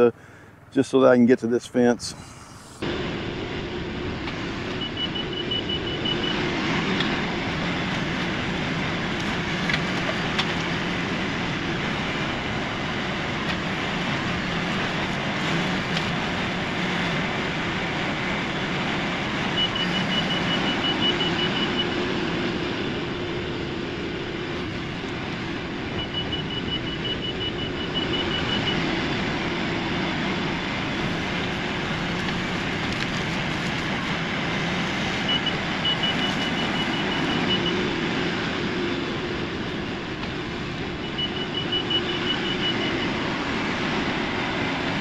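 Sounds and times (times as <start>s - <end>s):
tractor diesel engine running: 0.0s - 45.0s
reverse alarm beeps: 4.7s - 6.5s, 19.5s - 22.1s, 25.9s - 28.9s, 35.2s - 38.0s, 40.9s - 43.3s.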